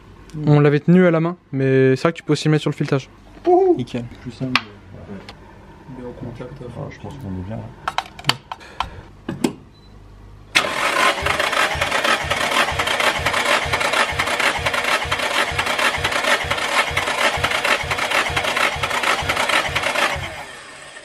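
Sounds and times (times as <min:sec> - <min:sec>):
engine cranking on starter motor: 0:10.5 - 0:21.0.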